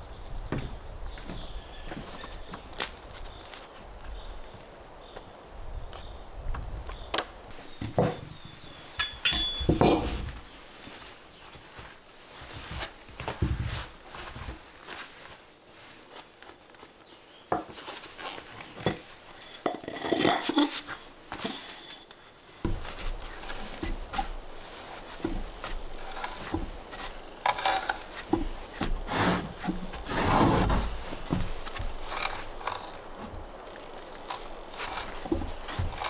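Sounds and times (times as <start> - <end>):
quiet rustling: 0.4 - 36.0
hand auger boring into wood: 25.3 - 33.3.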